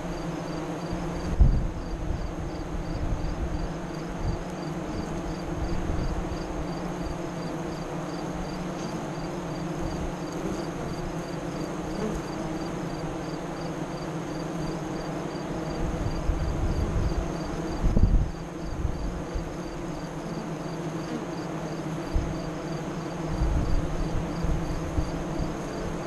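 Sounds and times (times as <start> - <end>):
honey bees buzzing: 0.0 - 26.0
wind on microphone: 0.9 - 4.5, 15.8 - 19.5, 23.2 - 26.0.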